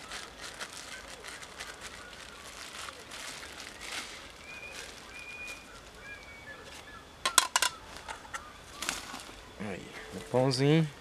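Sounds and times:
faint rustling and handling: 0.0s - 6.9s
bird whistling thin notes: 0.8s - 10.3s.

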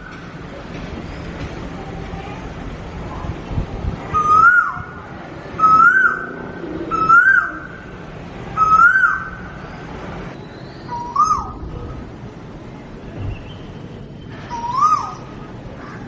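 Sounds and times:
swooping whistle-like call: 5.6s - 6.3s, 8.6s - 9.4s, 14.5s - 15.2s.

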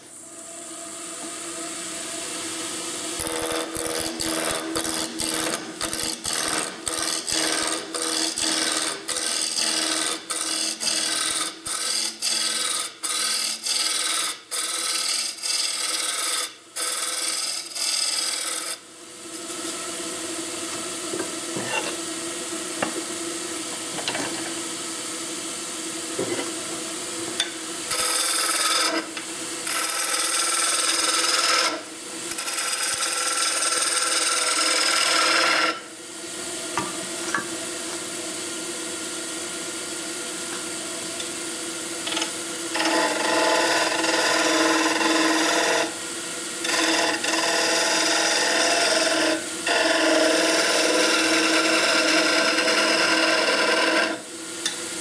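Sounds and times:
lathe motor hum: 1.1s - 16.0s, 42.0s - 46.0s, 46.6s - 54.2s
lathe tool cutting wood: 3.0s - 18.8s, 27.9s - 35.9s, 42.0s - 46.0s, 46.6s - 54.3s.

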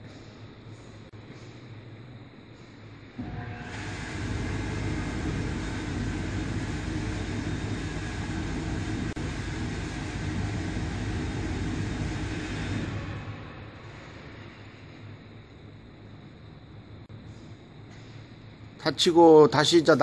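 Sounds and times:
air shower blowers rushing: 3.2s - 15.0s.

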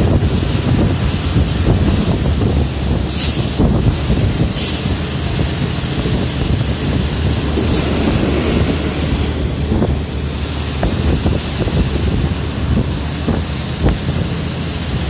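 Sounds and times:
train wheels rumbling on track: 0.0s - 15.0s
wind rushing past: 1.8s - 13.4s.

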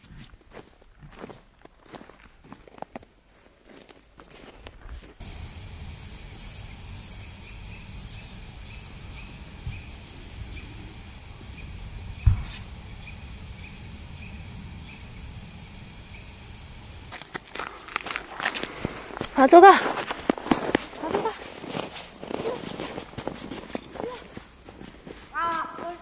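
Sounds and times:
wind rumbling on microphone: 4.7s - 20.8s
low bump: 5.2s - 19.3s
faint high ticking: 5.2s - 21.1s.

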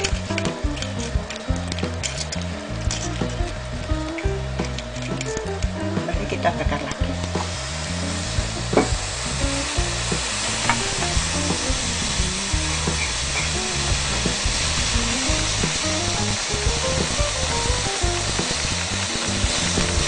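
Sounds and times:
background music melody: 0.0s - 20.0s
chicken sizzling on a grill: 0.0s - 20.0s.

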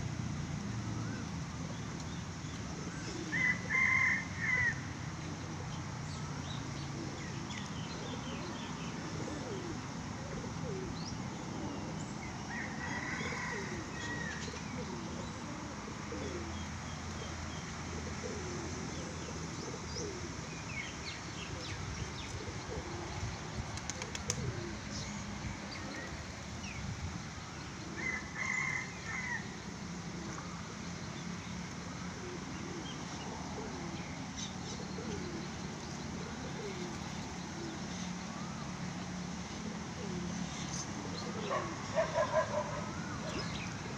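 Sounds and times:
pigeons cooing: 2.7s - 5.7s, 6.6s - 20.4s, 21.5s - 26.2s, 27.7s - 30.9s, 32.0s - 38.1s, 39.5s - 43.9s
wings fluttering: 23.6s - 24.6s.

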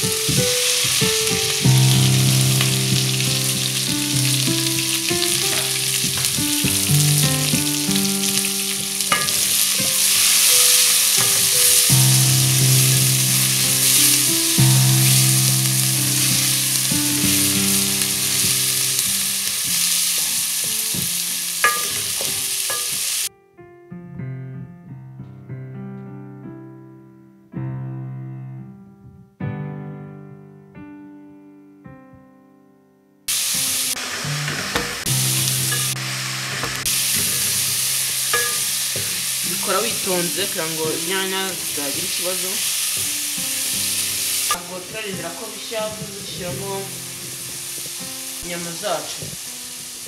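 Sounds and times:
vegetables sizzling in a pot: 0.0s - 23.3s, 33.3s - 50.0s
soft piano music: 0.0s - 50.0s
wooden spoon stirring: 5.0s - 11.9s, 13.3s - 23.1s, 33.4s - 43.1s.

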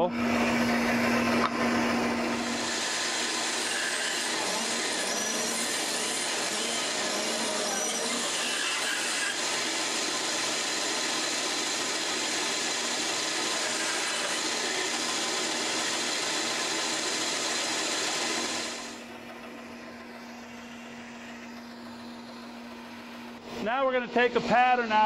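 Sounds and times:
low machine hum: 0.0s - 8.3s, 18.8s - 25.0s
dust collector running: 0.0s - 25.0s
bandsaw running: 1.1s - 19.1s.

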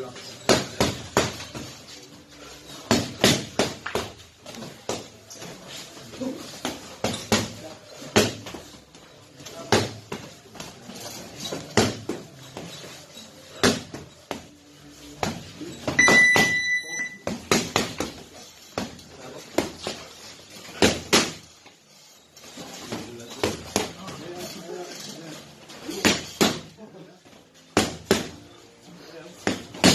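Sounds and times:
high electronic beep: 16.0s - 17.2s.

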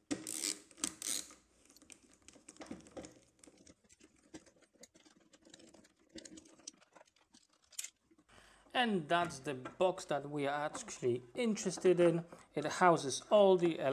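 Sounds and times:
screwdriver clicks and scrapes: 0.2s - 2.0s.

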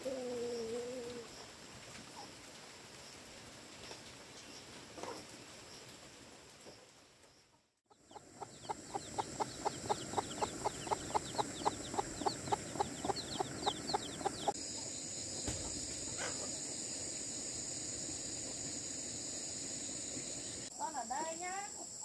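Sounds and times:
chicks peeping: 7.9s - 16.6s
chickens clucking: 7.9s - 16.7s
steady high hiss: 8.1s - 22.0s.

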